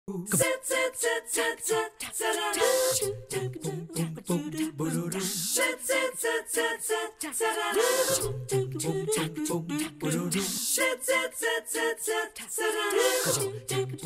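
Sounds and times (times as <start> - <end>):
voices singing a cappella jingle: 0.1 - 14.0.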